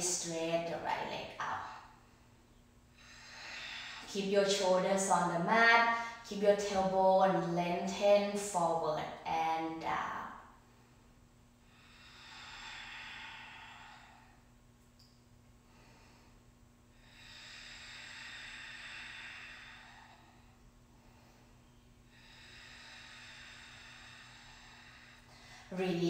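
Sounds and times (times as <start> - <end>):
faint electrical hum: 0.0 - 26.0
slow deep breaths: 1.7 - 4.2, 10.6 - 14.7, 15.5 - 26.0.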